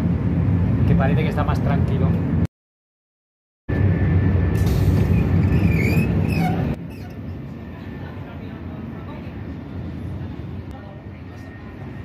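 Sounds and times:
train running rumble: 3.7s - 12.0s
brief squeals: 5.0s - 7.4s.

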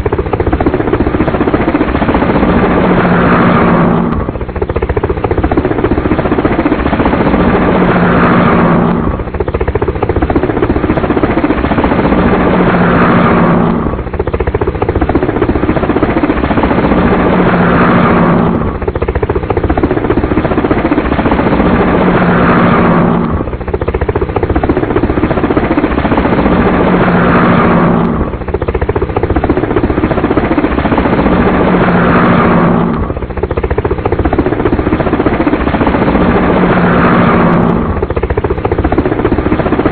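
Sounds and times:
helicopter rotor and engine: 0.0s - 39.9s.

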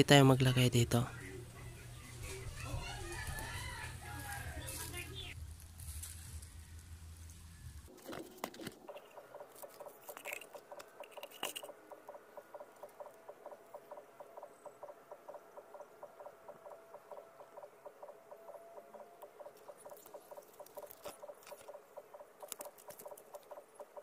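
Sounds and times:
animal chirping rapidly: 8.9s - 24.0s.

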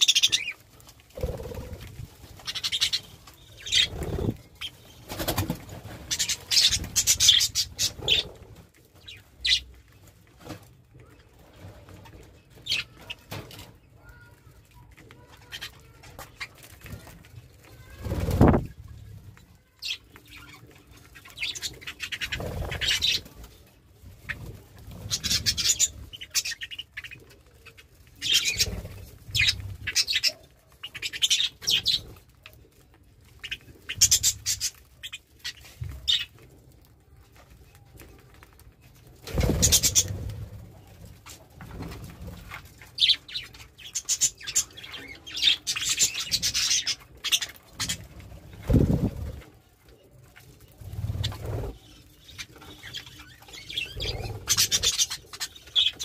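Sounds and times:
budgerigars chirping and chattering: 0.0s - 9.8s, 12.2s - 14.3s, 19.7s - 32.3s, 33.3s - 36.4s, 39.3s - 49.4s, 50.3s - 56.0s
wings fluttering: 0.0s - 49.6s, 50.2s - 56.0s.

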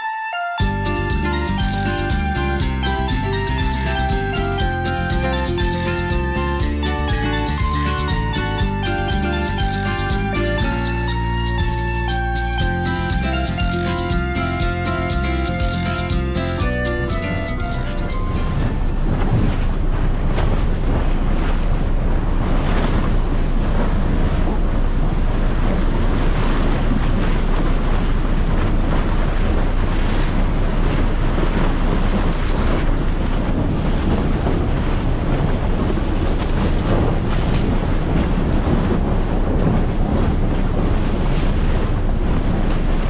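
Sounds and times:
ship low rumble: 0.0s - 43.0s
water rushing along hull: 0.0s - 43.0s
wind buffeting microphone: 12.5s - 43.0s.

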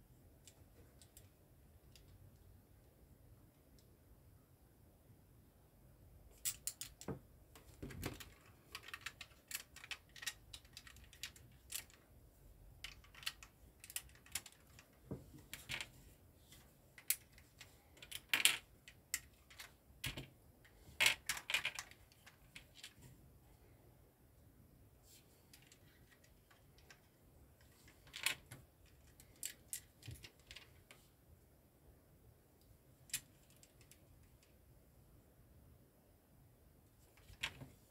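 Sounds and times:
plastic bricks clicking and snapping: 6.4s - 12.0s, 12.8s - 14.9s.

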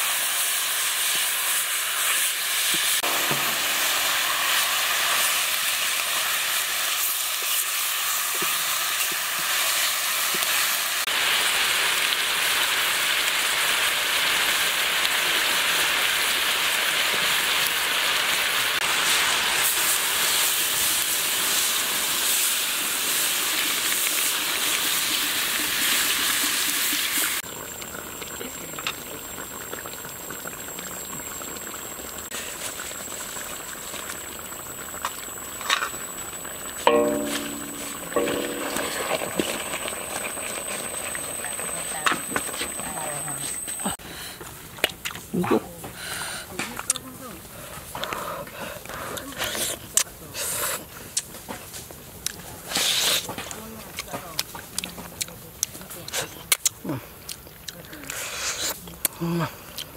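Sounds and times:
fish sizzling in hot oil: 0.0s - 44.7s
liquid bubbling: 27.4s - 44.0s.

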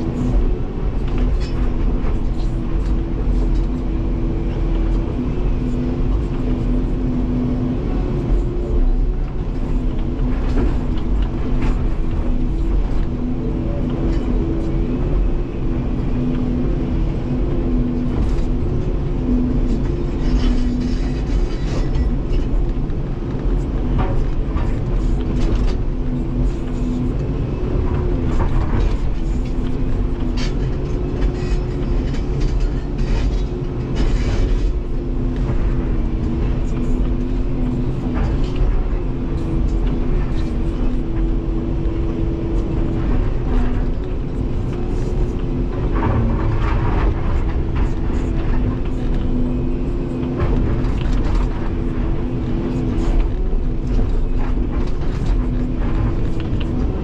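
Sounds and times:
excavator engine and hydraulic drone: 0.0s - 57.0s.

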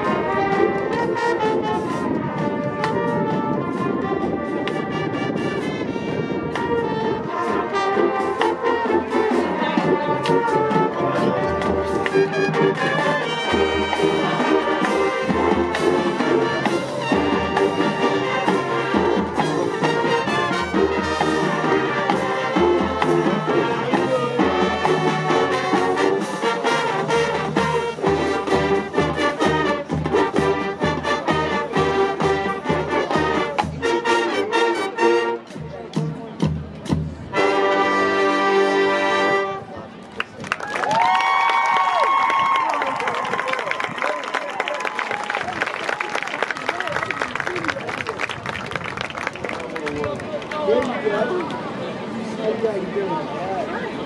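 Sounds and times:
brass section chords: 0.0s - 36.1s, 37.3s - 39.7s
drumline beat: 7.6s - 37.4s.

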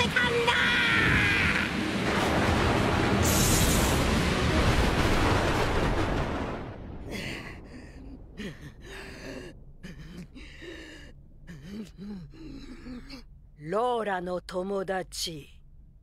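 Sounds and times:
lightning crack: 0.0s - 8.0s
heavy rain: 0.0s - 9.0s
rumbling thunder: 1.0s - 8.4s.

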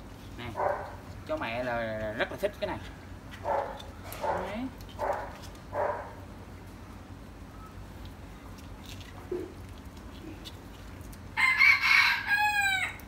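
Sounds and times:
rooster crowing: 11.4s - 13.0s.

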